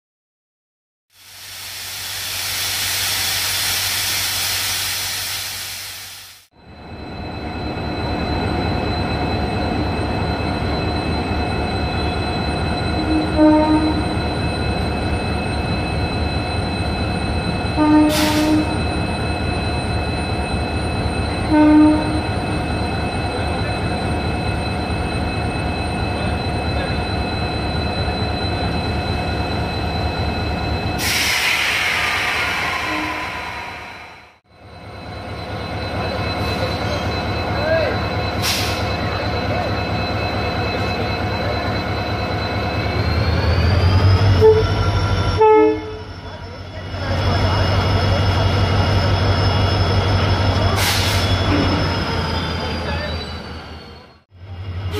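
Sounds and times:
air hissing: 1.2 - 6.5.

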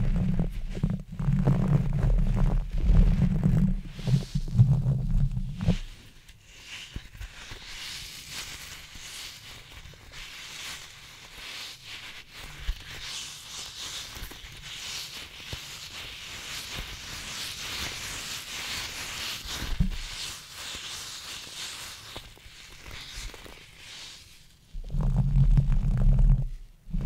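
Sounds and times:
soft low thumps on microphone: 0.0 - 6.0, 24.7 - 27.0
plastic object rubbed and scratched: 0.0 - 27.0.

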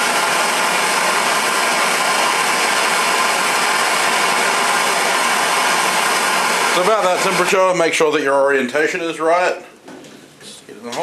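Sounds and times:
gas torch flame hissing: 0.0 - 7.4.

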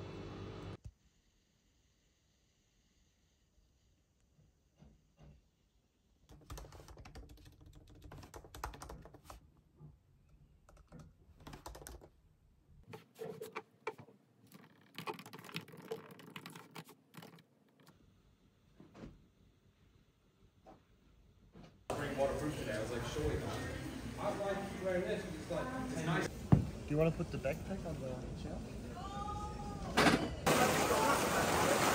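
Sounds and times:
laptop keyboard typing: 6.3 - 9.4, 10.7 - 12.1, 14.5 - 17.9.

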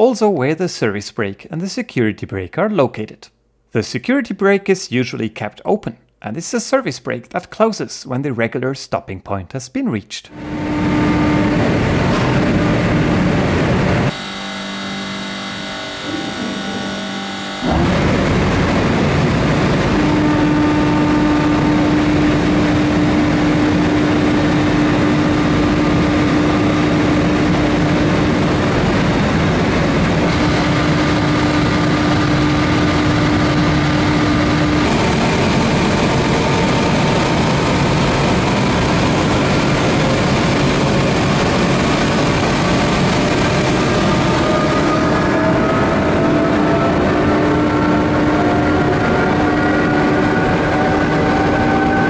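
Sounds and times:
machinery mechanical drone: 10.3 - 52.0
steady machine whine: 10.3 - 52.0
faint whines rising in pitch: 10.4 - 52.0.

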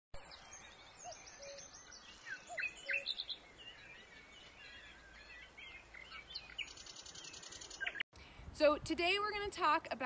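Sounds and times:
birds chirping and whistling: 0.2 - 8.0
faint outdoor hiss: 0.2 - 10.0.

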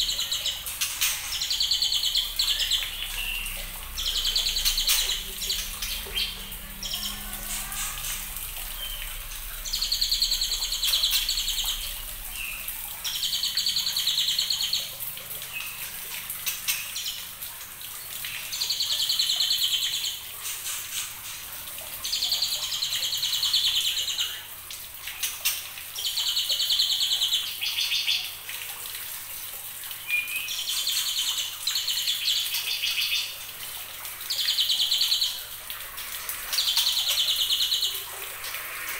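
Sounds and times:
bird singing high warbling phrases: 1.3 - 14.9, 36.5 - 38.1.

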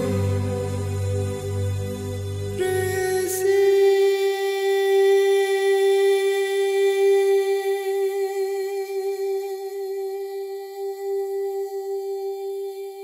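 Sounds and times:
long held musical note: 0.0 - 3.4
low drone: 0.0 - 3.5.

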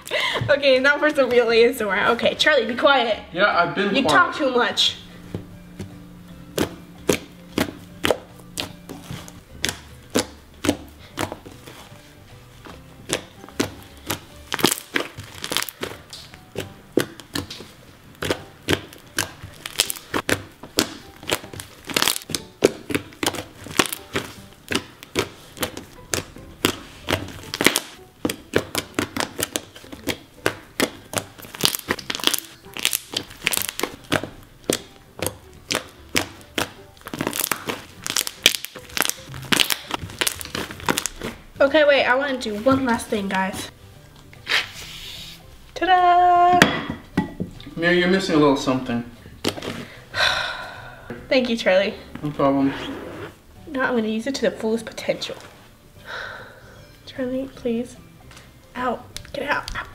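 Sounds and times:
slime air pockets popping: 13.0 - 41.4.

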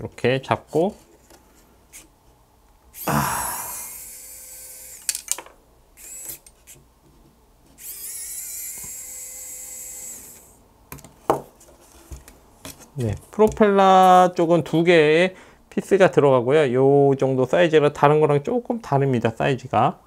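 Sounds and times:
electric screwdriver whining: 3.0 - 5.3, 6.0 - 6.6, 7.8 - 10.6.

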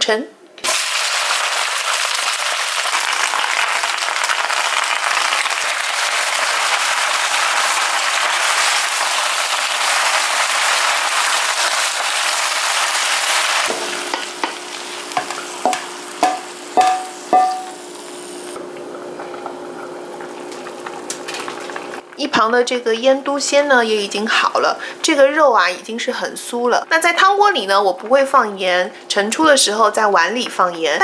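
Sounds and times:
greens sizzling in a wok: 0.6 - 18.6
wok knocking on a plate: 13.7 - 14.6, 15.2 - 17.8.

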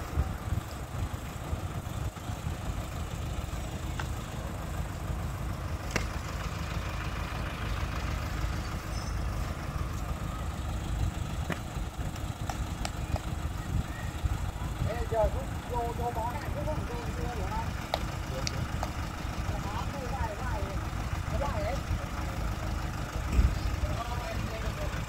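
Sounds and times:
diesel engine idling: 0.0 - 25.0
sharp engine knocks: 3.8 - 4.2, 5.8 - 6.4, 11.4 - 13.4, 16.3 - 19.2, 23.2 - 23.7.

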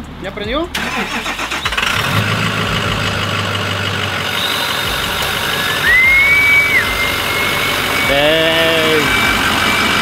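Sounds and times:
pickup truck engine running: 0.0 - 10.0
high turbo whistle: 4.2 - 10.0.

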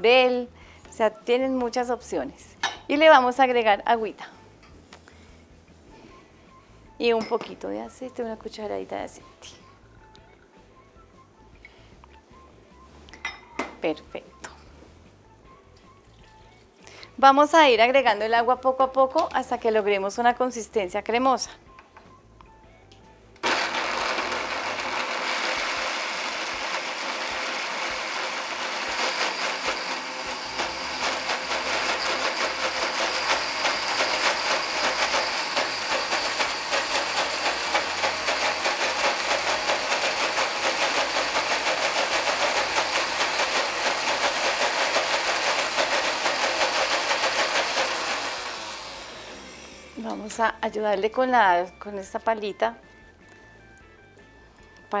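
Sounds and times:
blender running: 23.4 - 50.1.

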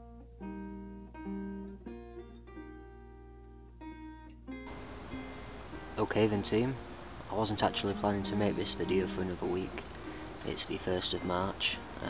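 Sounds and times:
plucked guitar notes: 0.0 - 12.0
steady hiss: 4.7 - 12.0.

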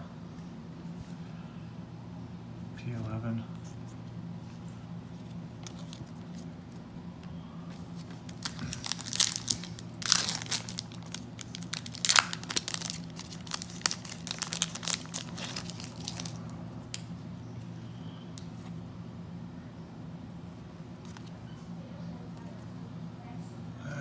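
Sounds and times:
foil wrapper tearing and crinkling: 8.0 - 16.5.

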